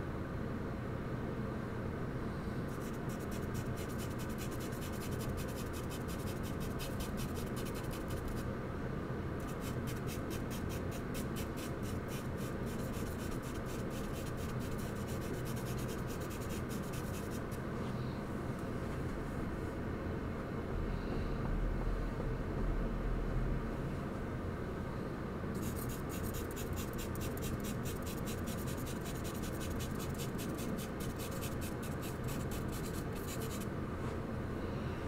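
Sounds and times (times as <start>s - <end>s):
steady low hum: 0.0s - 35.0s
charcoal scratching on paper: 2.7s - 8.4s, 9.4s - 17.6s, 25.6s - 33.7s.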